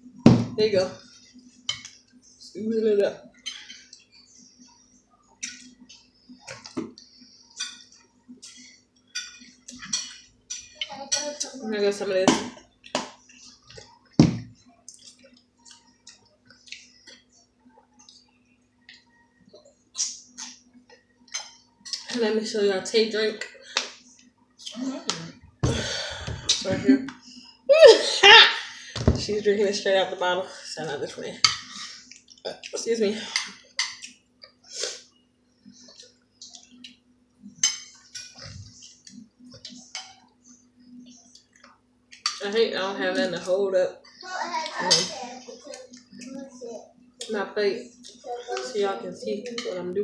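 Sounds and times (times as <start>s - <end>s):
spoons clinking on plates: 3.4s - 4.2s, 7.5s - 11.4s, 20.0s - 22.2s, 31.4s - 34.6s, 35.9s - 40.3s.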